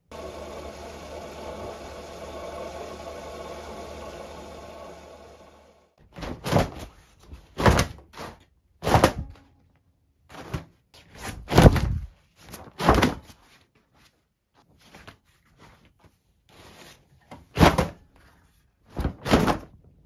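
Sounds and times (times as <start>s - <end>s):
laundry flapping and thumping: 10.3s - 13.4s, 18.9s - 19.8s.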